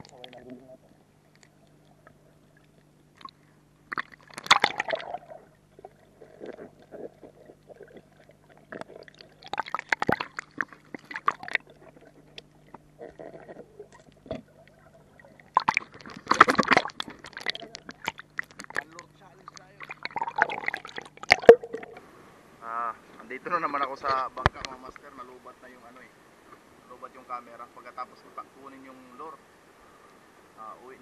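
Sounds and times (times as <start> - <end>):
water splashing: 0.0 - 22.1
water sloshing and bubbling: 0.0 - 23.2
faint steady hum: 0.0 - 31.0.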